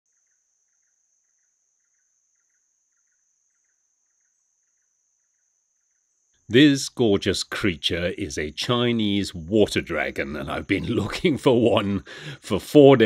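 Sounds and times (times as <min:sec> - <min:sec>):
insect buzzing: 0:00.1 - 0:06.5
insect double chirp: 0:00.1 - 0:09.2.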